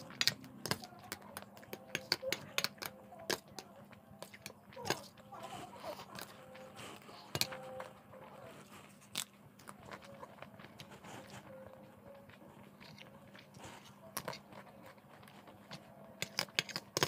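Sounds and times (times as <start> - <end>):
crunching and chewing crisps: 0.0 - 17.0.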